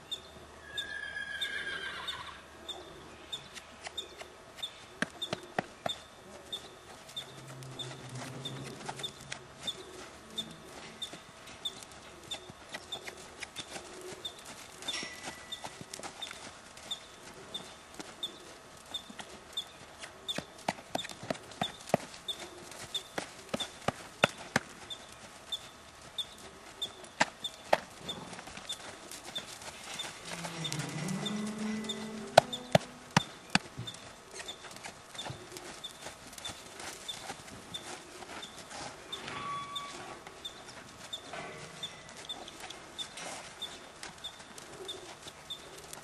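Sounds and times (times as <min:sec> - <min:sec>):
horse hooves on packed ground: 0:00.0 - 0:46.0
faint high chirp: 0:38.4 - 0:43.8.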